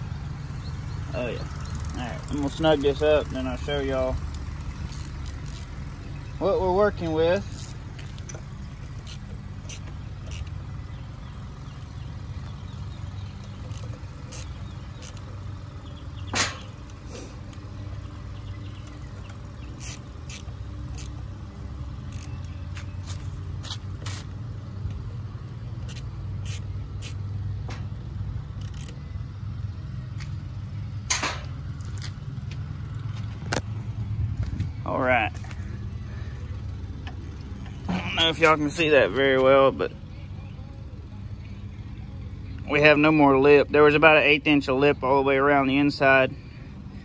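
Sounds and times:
steady low rumble: 0.0 - 47.0
hand ratchet clicking: 4.6 - 5.7, 7.4 - 8.4, 13.4 - 15.3, 19.8 - 21.2, 22.1 - 24.2, 25.8 - 27.2, 28.6 - 29.0.

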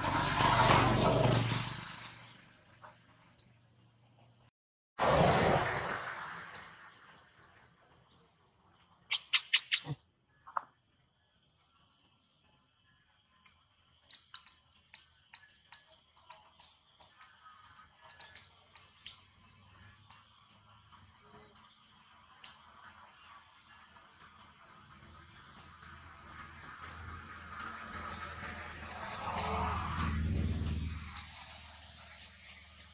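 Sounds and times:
insects droning: 0.0 - 32.9
sharp clicks: 9.1 - 10.0
faint ticks: 13.4 - 20.5.

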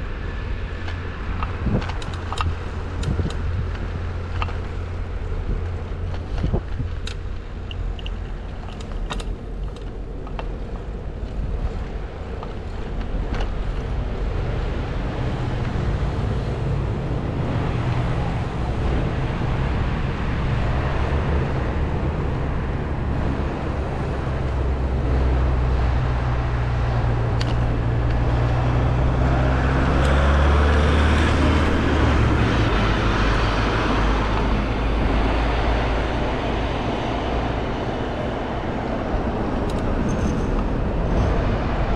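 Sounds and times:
low engine rumble: 0.0 - 41.9
vehicle passing with tyre noise: 0.0 - 41.9.

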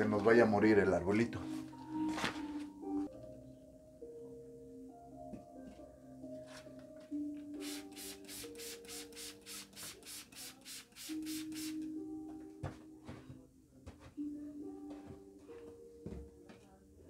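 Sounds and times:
soft background music: 0.0 - 17.0
spray bottle hissing: 7.6 - 11.8.

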